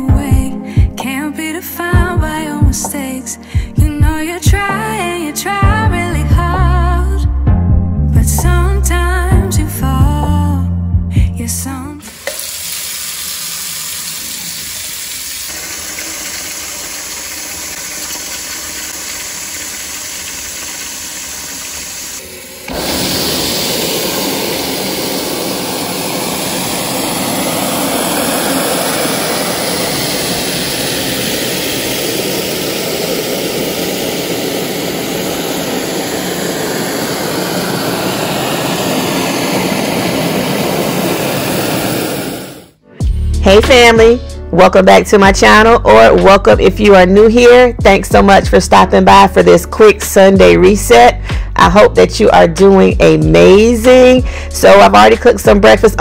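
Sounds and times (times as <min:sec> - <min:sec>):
faucet water running into sink: 0:12.0 - 0:25.9.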